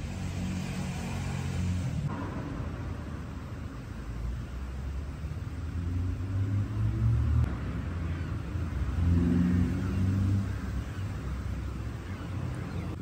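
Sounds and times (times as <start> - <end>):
vehicle engine humming: 0.0 - 13.0.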